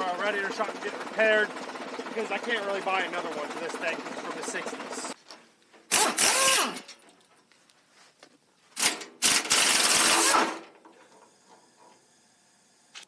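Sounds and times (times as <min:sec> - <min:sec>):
pneumatic impact wrench bursts: 0:05.9 - 0:06.9, 0:08.8 - 0:12.2.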